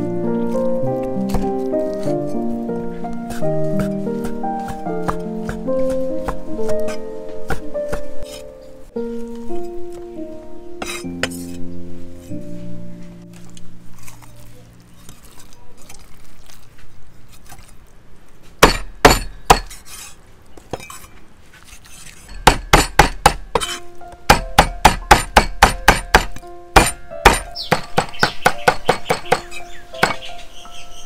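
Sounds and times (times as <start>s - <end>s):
blade chopping on wooden board: 3.3s - 8.4s, 18.6s - 20.0s, 22.3s - 30.2s.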